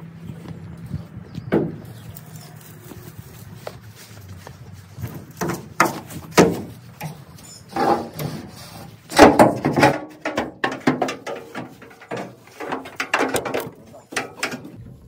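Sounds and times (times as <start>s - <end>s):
knocks and scrapes: 0.8s - 14.8s
metal creaks: 5.0s - 15.0s
metal clatter: 5.3s - 14.8s.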